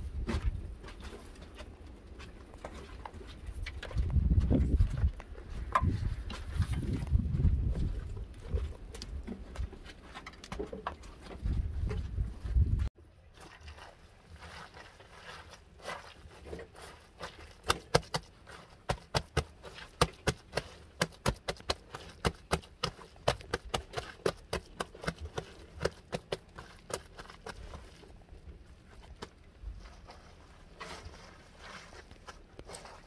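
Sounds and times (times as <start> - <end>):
hands scraping dry soil: 13.4 - 33.0.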